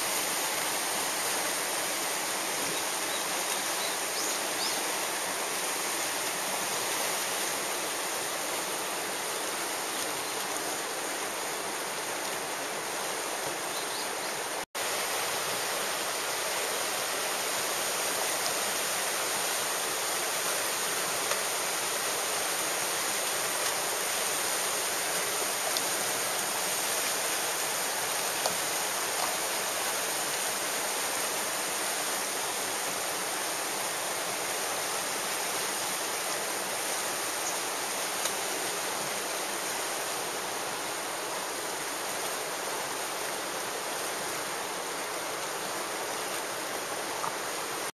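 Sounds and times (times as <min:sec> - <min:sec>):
whitewater rapids rushing: 0:14.4 - 0:47.9.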